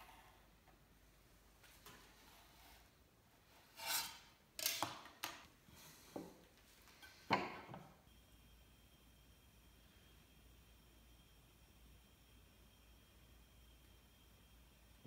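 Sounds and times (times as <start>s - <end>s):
wood sliding rub: 3.5s - 4.3s
wood pieces knocking on bench: 7.3s - 7.9s.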